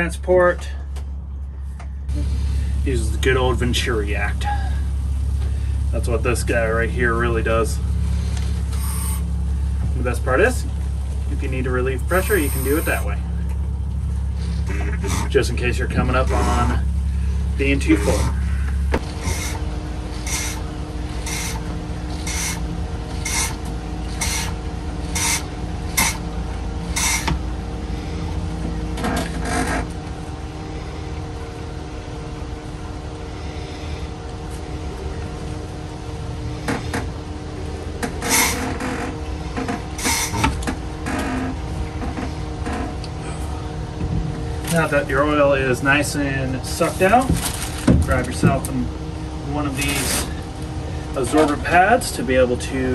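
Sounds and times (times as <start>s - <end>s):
background hum: 0.0s - 52.9s
hand pump strokes: 8.2s - 9.3s, 12.1s - 13.2s, 14.4s - 16.9s, 17.6s - 27.4s, 38.0s - 42.8s, 49.7s - 50.4s.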